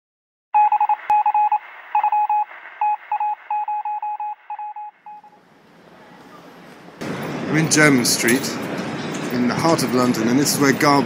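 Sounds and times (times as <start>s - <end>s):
morse code beeping: 0.6s - 5.4s.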